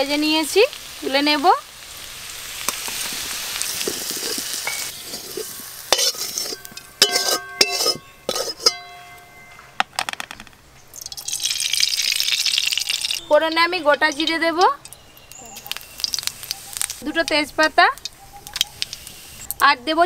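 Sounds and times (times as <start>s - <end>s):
potatoes sizzling in hot oil: 0.0s - 7.9s, 11.0s - 20.0s
metal spoon clinking on metal: 5.9s - 9.4s
oil pouring into hot pan: 11.0s - 13.2s.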